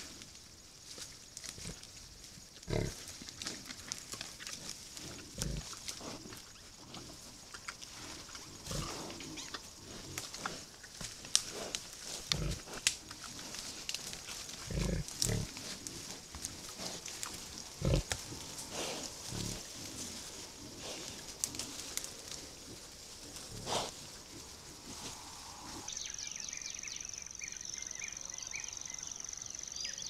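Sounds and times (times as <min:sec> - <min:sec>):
grass and twigs rustling: 0:00.0 - 0:26.2
wild boar grunting: 0:02.6 - 0:25.9.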